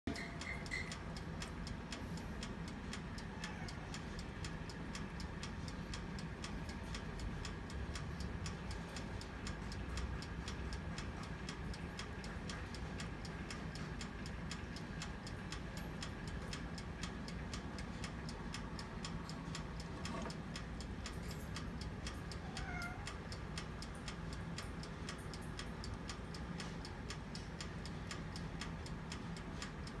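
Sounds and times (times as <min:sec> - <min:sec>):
rotisserie oven humming: 0:00.1 - 0:30.0
cat meowing faintly: 0:03.2 - 0:04.2, 0:22.4 - 0:23.2.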